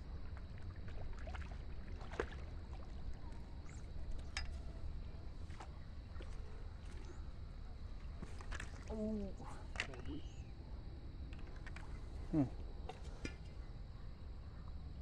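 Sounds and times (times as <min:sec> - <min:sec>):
fish splashing in water: 0:00.4 - 0:03.8.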